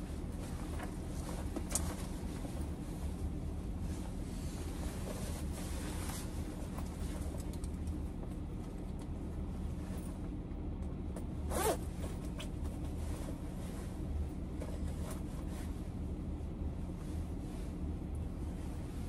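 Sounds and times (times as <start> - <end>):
fabric rustling: 0.0 - 7.5
steady low hum: 0.0 - 19.0
coat zipper zipping: 11.5 - 11.9.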